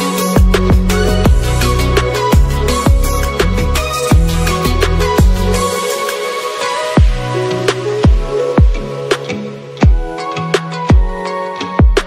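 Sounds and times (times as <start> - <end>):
synth bass line: 0.0 - 5.9
electronic music: 0.0 - 12.0
heavy kick drum: 0.4 - 1.7, 2.3 - 5.6, 7.0 - 7.3, 8.0 - 8.9, 9.8 - 10.2, 10.9 - 11.2, 11.8 - 12.0.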